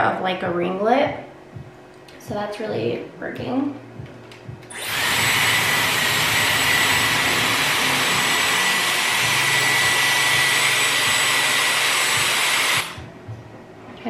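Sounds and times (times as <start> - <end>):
high motor whine: 4.5 - 13.4
hair styler air rushing: 4.7 - 13.1.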